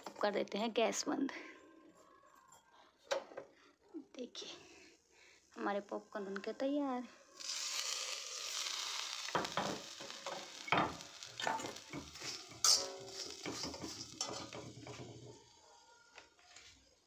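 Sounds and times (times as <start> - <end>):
hot pan hissing: 7.2 - 15.5
metal ladle scraping pan: 7.4 - 15.4.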